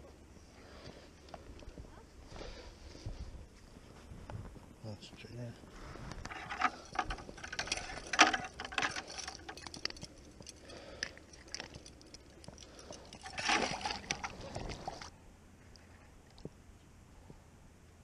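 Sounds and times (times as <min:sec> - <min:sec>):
handling clicks and rustles: 0:06.0 - 0:15.1.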